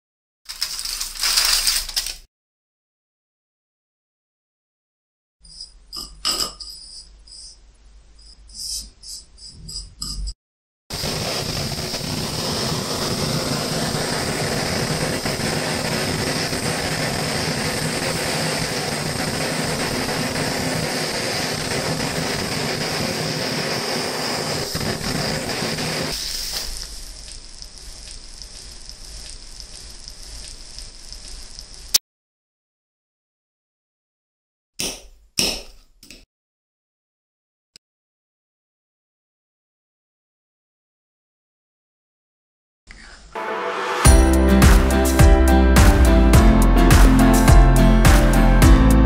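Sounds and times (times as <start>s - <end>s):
blowtorch flame hissing: 10.9s - 32.0s.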